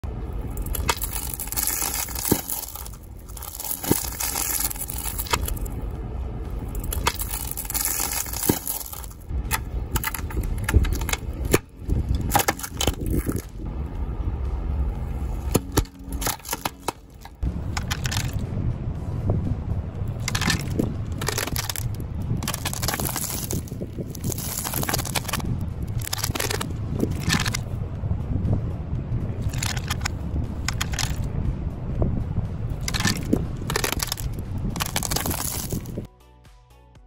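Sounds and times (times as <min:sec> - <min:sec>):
wooden decoration cracking: 0:00.5 - 0:05.7, 0:06.8 - 0:13.6, 0:15.4 - 0:18.4, 0:20.2 - 0:27.6, 0:32.8 - 0:36.1
tyre crunching pine cones: 0:00.5 - 0:05.8, 0:06.6 - 0:13.7, 0:15.1 - 0:18.4, 0:20.2 - 0:27.6, 0:32.8 - 0:36.1.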